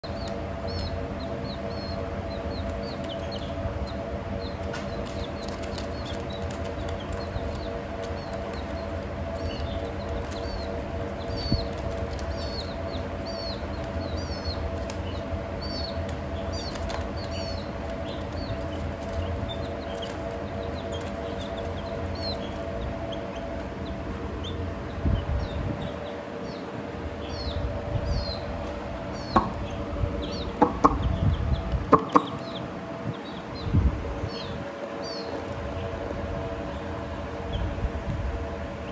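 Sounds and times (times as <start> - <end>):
chicks peeping: 0.0 - 38.9
steady low hum: 0.0 - 38.9
sharp knocks: 29.3 - 29.6, 30.6 - 31.2, 31.9 - 32.5.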